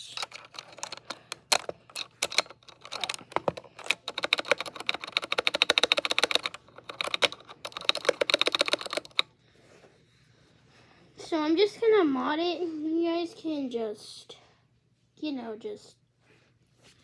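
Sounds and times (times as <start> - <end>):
keyboard spacebar clacking: 0.8 - 9.2.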